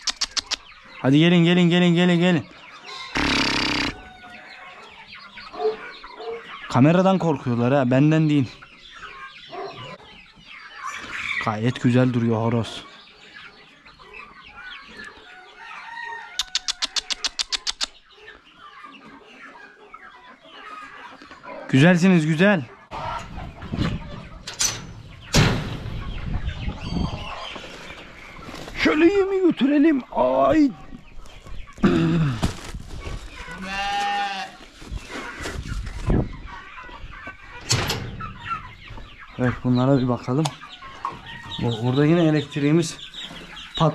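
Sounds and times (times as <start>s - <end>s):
chickens clucking: 0.0s - 43.9s
sheep bleating: 3.1s - 4.0s, 33.5s - 34.6s.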